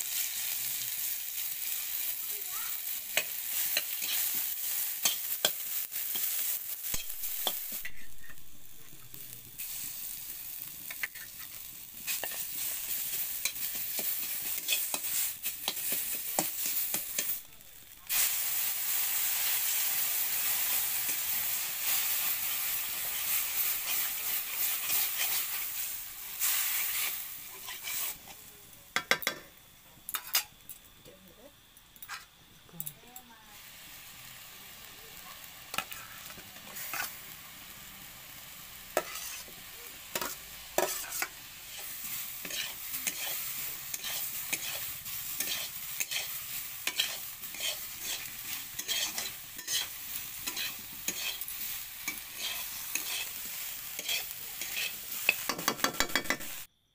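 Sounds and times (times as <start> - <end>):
food sizzling in hot oil: 0.0 - 56.7
metal spatula scraping pan: 27.0 - 28.2, 35.7 - 37.2, 38.9 - 39.5, 40.1 - 56.6.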